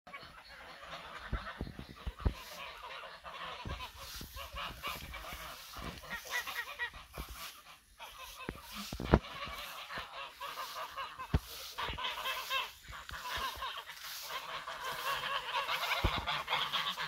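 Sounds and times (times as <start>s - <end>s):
geese honking and cackling: 0.1s - 17.0s.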